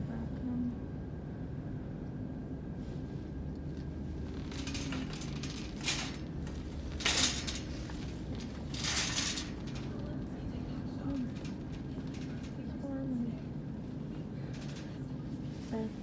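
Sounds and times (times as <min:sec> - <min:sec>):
low room hum: 0:00.0 - 0:16.0
metal clattering and clinking: 0:04.3 - 0:10.2.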